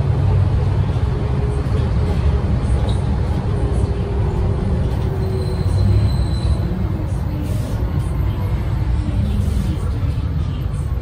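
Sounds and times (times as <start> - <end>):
bus engine low rumble: 0.0 - 11.0
road noise: 0.0 - 11.0.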